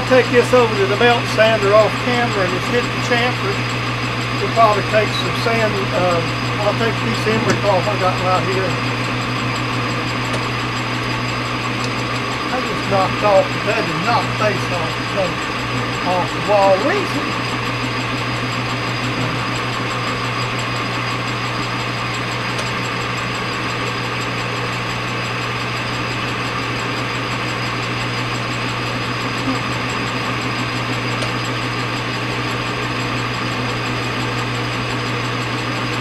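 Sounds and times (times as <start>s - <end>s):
metal lathe running: 0.0s - 36.0s.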